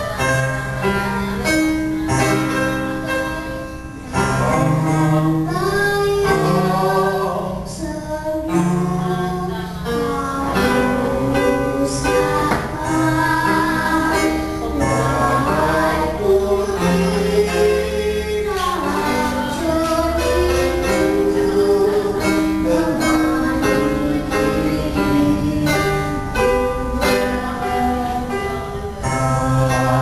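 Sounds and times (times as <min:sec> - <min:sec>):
electronic keyboard chords: 0:00.0 - 0:30.0
girl singing into a microphone: 0:00.0 - 0:30.0.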